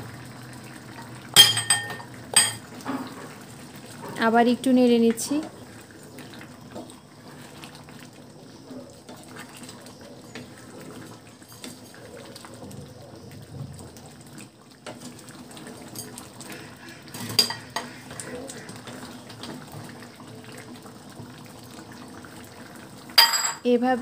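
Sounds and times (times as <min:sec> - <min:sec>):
liquid sloshing in a pan: 0:00.6 - 0:23.2
spatula scraping a pan: 0:16.4 - 0:18.9.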